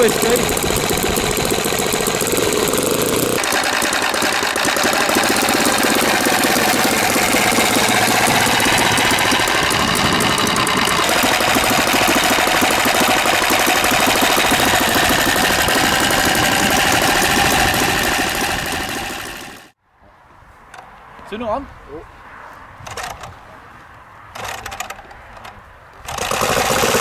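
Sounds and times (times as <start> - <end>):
engine driving propeller: 0.0 - 19.8, 26.0 - 27.0.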